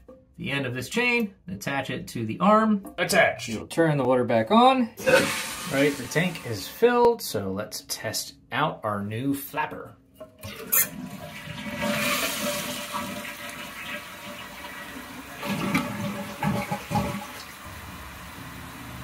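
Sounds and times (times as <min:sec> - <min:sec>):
toilet flushing water rushing: 0:05.0 - 0:06.8, 0:10.4 - 0:19.0
water gurgling: 0:10.5 - 0:17.8.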